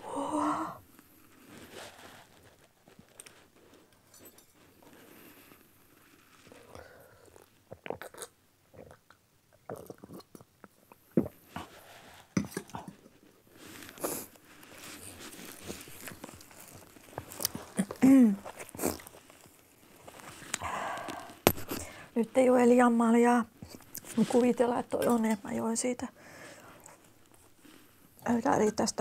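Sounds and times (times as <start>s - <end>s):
person chewing crunchy food: 6.6s - 11.8s, 13.6s - 22.0s.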